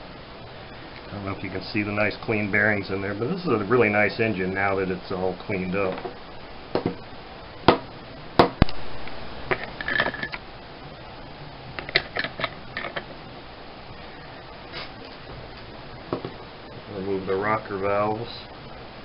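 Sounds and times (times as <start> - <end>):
metal parts clicking and knocking: 9.5 - 10.4, 11.8 - 13.1.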